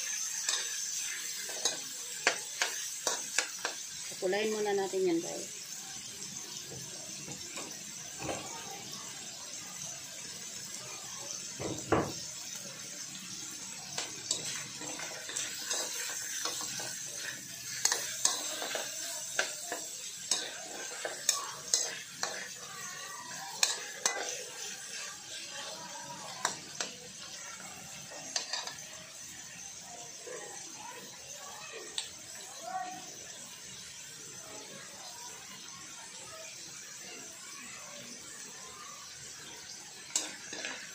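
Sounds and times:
metal spatula scraping a pan: 0.0 - 3.9, 13.1 - 27.4, 28.0 - 28.9, 40.0 - 40.9
pork sizzling in a wok: 0.0 - 40.9.

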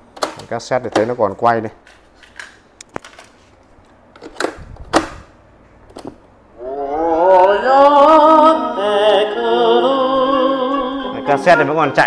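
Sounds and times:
cassette deck clacks: 0.0 - 1.2, 1.8 - 3.3, 3.9 - 5.2
music with singing from speakers: 7.0 - 12.0.

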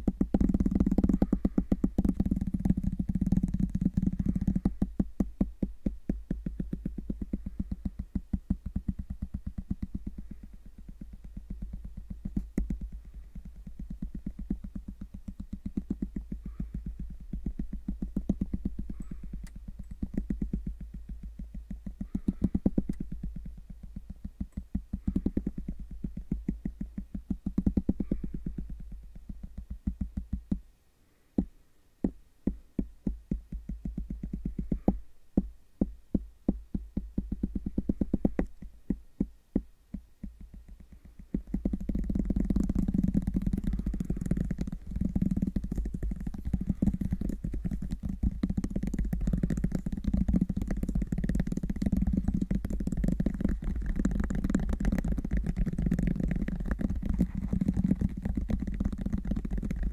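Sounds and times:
rubbing on microphone: 0.0 - 30.6, 32.0 - 59.9
fingers tapping on microphone: 0.0 - 30.7, 31.4 - 59.9.

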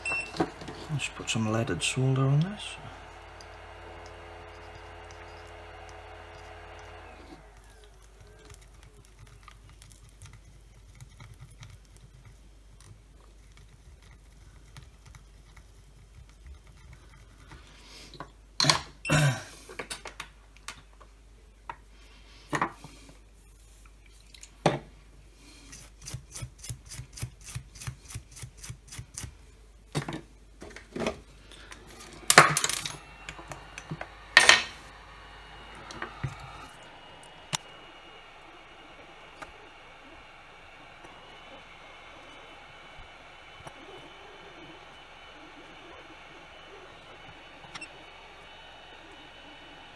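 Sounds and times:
hot-air gun hissing: 0.0 - 8.6, 31.3 - 49.9.

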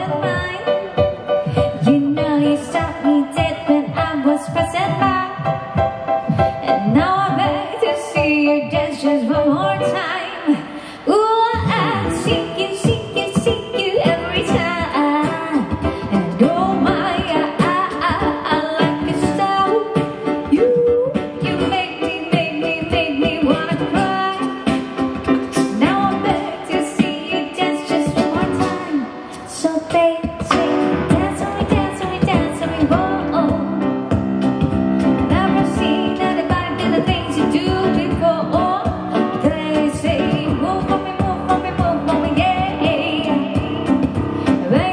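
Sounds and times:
keyboard: 0.0 - 44.9
woman singing lead: 0.0 - 44.9
steady beat: 11.6 - 26.5.

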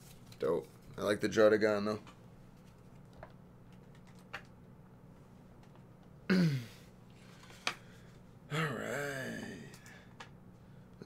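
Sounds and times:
man sighing or grunting: 6.3 - 6.9, 8.5 - 10.1.

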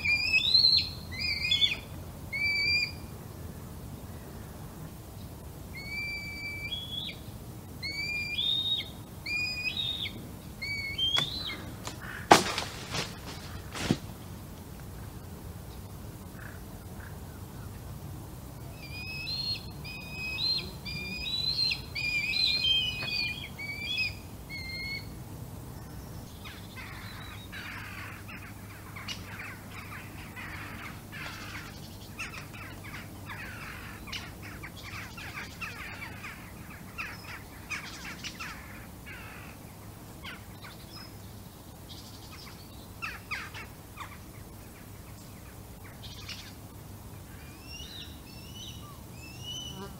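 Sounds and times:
wavering whistled bird calls: 0.0 - 3.1, 5.8 - 11.9, 18.7 - 25.1, 47.4 - 49.9
short rough bird calls: 9.3 - 14.1.

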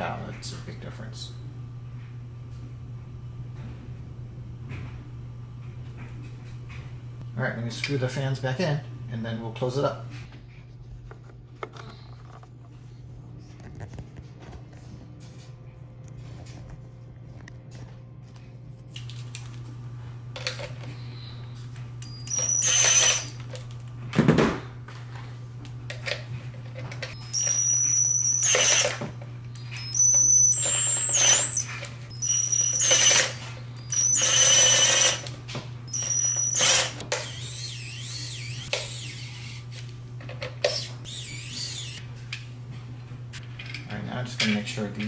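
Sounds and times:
steady low hum: 0.0 - 45.0
electric screwdriver whining: 22.0 - 23.6, 27.1 - 39.9, 40.6 - 42.0.

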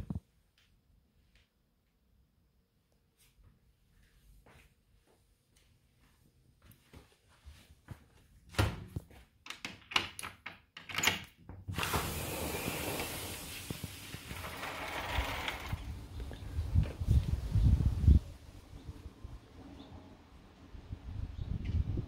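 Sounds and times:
door latch clicks and knocks: 9.5 - 11.4
sliding door rushing open: 11.7 - 16.1.

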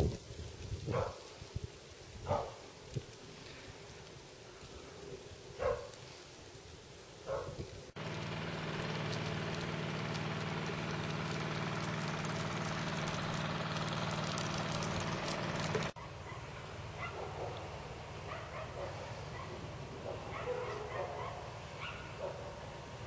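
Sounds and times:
engine running with low hum: 7.2 - 23.0.

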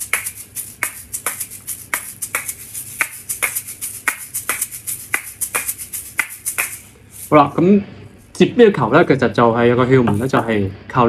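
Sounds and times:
seed rattles: 0.0 - 7.4
shaker shells clacking: 0.0 - 7.4.

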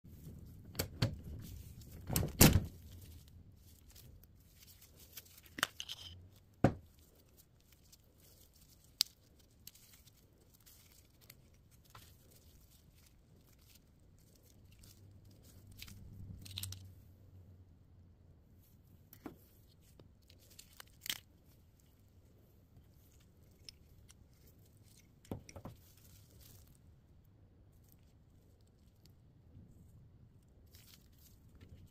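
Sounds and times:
soft plastic rustling: 0.1 - 17.4, 18.5 - 31.9
clicks and knocks of metal parts: 5.4 - 6.2.

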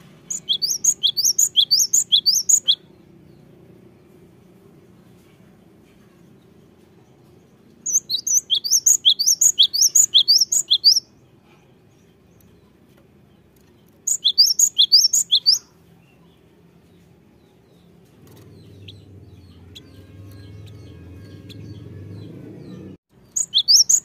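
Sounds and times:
bird singing high sharp notes: 0.3 - 2.9, 7.9 - 11.1, 14.1 - 15.8, 18.5 - 24.0.

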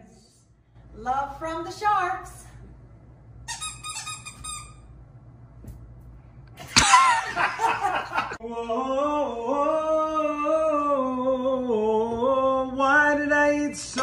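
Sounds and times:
voices singing in harmony: 8.4 - 14.0.

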